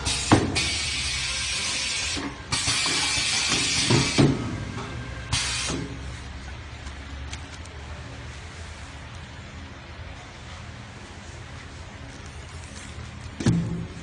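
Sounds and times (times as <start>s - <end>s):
compressed air hissing: 0.0s - 4.4s, 5.3s - 6.0s.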